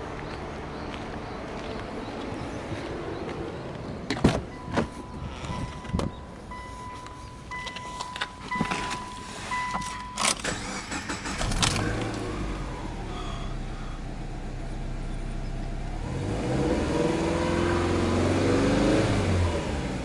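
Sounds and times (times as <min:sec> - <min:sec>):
car door clicks and knocks: 0:04.1 - 0:06.2
car engine starting and idling: 0:04.1 - 0:20.0
dashboard warning chime beeping: 0:04.5 - 0:11.0.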